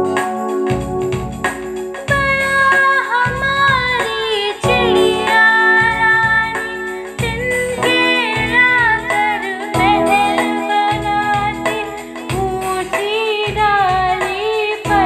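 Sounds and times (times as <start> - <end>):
music with steady beat: 0.0 - 15.0
woman singing: 2.1 - 15.0.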